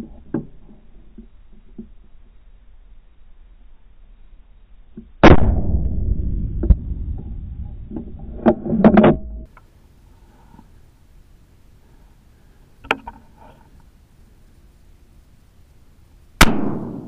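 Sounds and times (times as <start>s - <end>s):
rifle shot: 5.2s - 7.8s, 16.4s - 17.0s.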